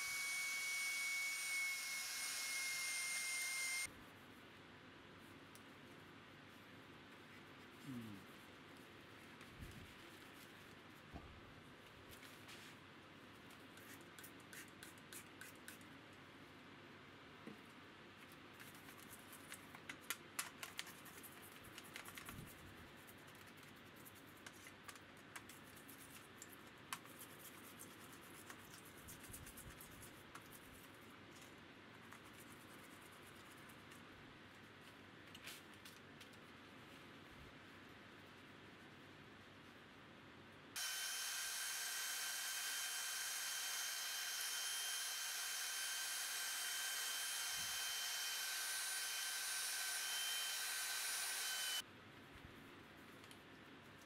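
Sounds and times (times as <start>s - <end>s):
toothbrush scrubbing: 20.6s - 31.0s, 32.0s - 34.0s.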